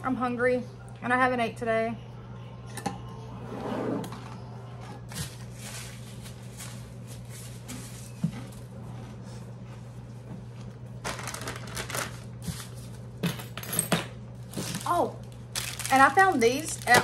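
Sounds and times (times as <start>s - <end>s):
steady low hum: 0.0s - 17.0s.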